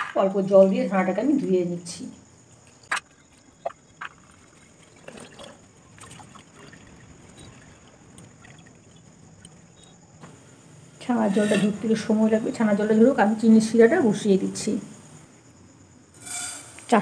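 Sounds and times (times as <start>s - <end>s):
water trickling and dripping: 2.0s - 10.2s.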